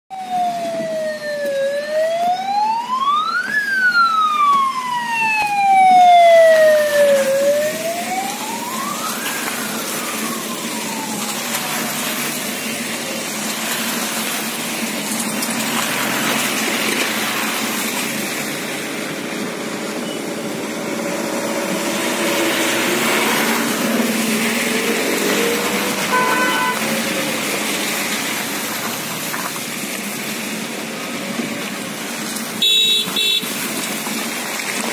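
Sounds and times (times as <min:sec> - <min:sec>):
vehicle siren wailing: 0:00.1 - 0:17.9, 0:20.9 - 0:28.6
cars driving past on wet road: 0:00.1 - 0:34.9.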